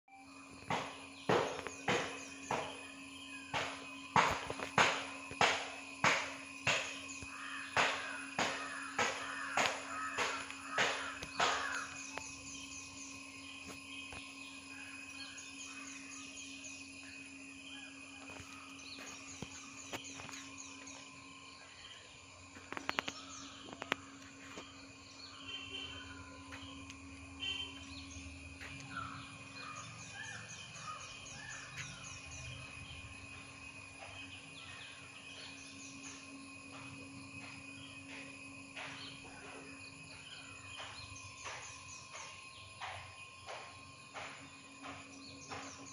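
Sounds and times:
faint steady hum: 0:00.1 - 0:45.9
birds chirping: 0:00.2 - 0:45.9.

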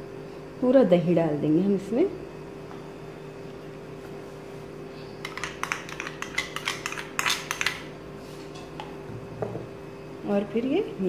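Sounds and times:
spoon clicking and scraping bowl: 0:05.2 - 0:07.9.

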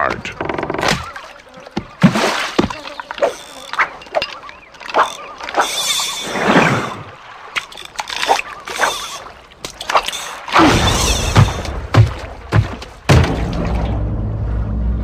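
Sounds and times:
fishing line swishing: 0:03.0 - 0:10.6.

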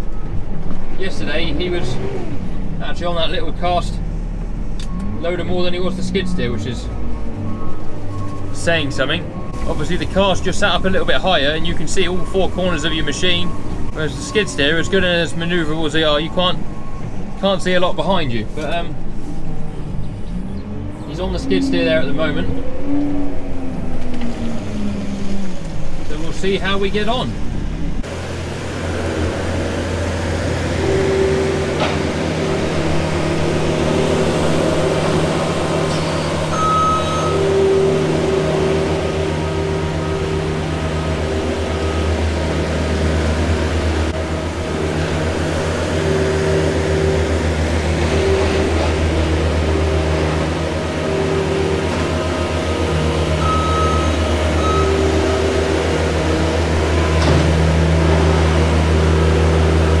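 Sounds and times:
diesel engine running: 0:00.0 - 1:00.0
short high beeps: 0:35.9 - 0:37.6, 0:53.4 - 0:55.1.

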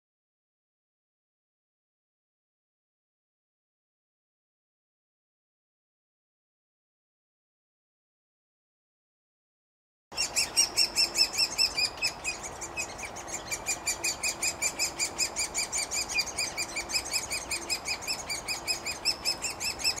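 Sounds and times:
nestlings chirping: 0:10.2 - 0:20.0.

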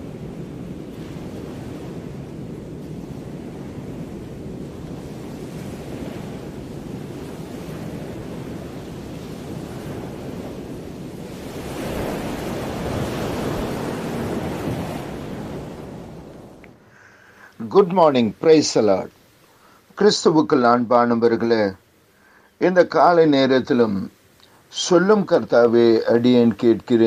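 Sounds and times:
wind buffeting the microphone: 0:00.0 - 0:16.8
sea waves rushing: 0:00.0 - 0:27.0
surf washing on shore: 0:00.0 - 0:27.0.

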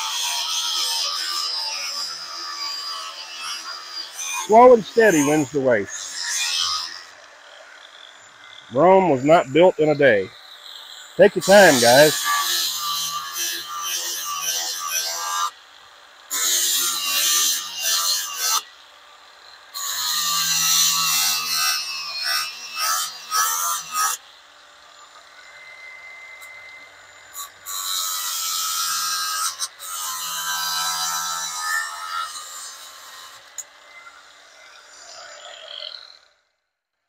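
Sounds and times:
power tool sanding: 0:00.0 - 0:15.5.

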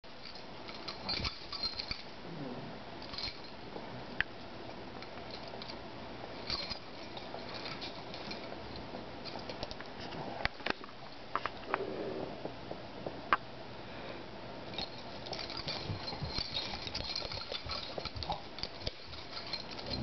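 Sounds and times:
collar tag jingling: 0:00.1 - 0:02.2, 0:03.0 - 0:03.6, 0:05.2 - 0:09.8, 0:14.7 - 0:20.0
dogs play-wrestling on carpet: 0:00.2 - 0:02.2, 0:02.9 - 0:03.9, 0:04.9 - 0:11.7, 0:14.7 - 0:20.0.

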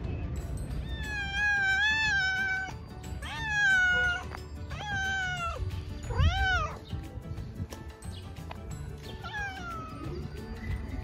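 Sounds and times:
cat meowing: 0:00.8 - 0:06.8, 0:09.2 - 0:10.1.

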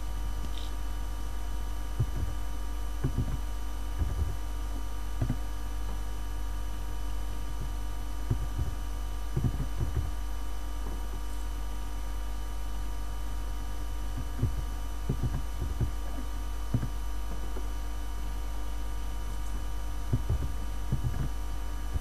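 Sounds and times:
electrical hum: 0:00.0 - 0:22.0
computer keyboard typing thumps: 0:02.0 - 0:06.0, 0:07.5 - 0:10.2, 0:14.2 - 0:17.7, 0:20.1 - 0:22.0.

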